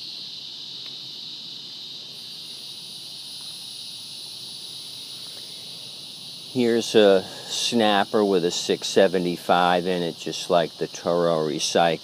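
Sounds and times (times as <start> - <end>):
high-pitched insect chorus: 0.0 - 12.0.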